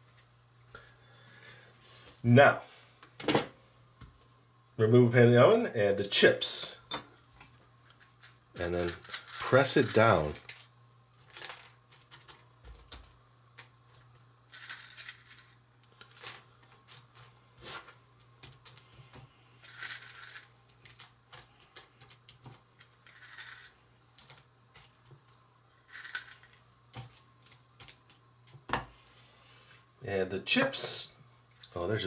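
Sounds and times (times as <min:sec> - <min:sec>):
chips crackling in metal pan: 0:11.2 - 0:12.4.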